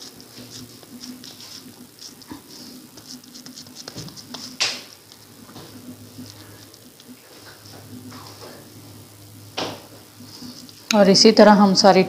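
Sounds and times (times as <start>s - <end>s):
hands squelching soft mixture: 0.0s - 8.8s.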